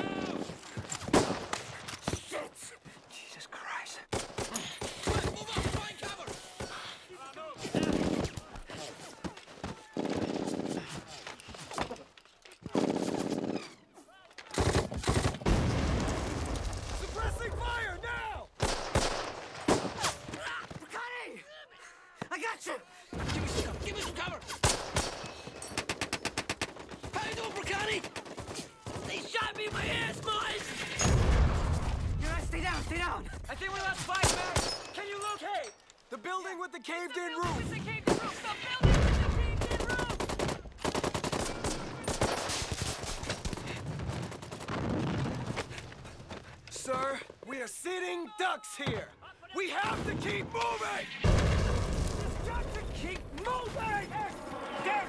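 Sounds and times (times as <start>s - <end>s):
rifle shots: 18.6s - 20.1s, 24.6s - 27.1s
sharp gunshots: 18.6s - 20.3s, 24.6s - 32.8s, 34.0s - 35.0s, 37.5s - 45.2s
machine-gun fire: 38.8s - 45.5s.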